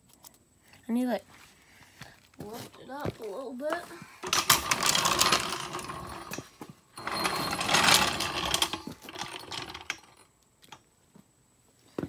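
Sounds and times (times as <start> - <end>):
floor jack wheels rattling on concrete: 4.2 - 10.2.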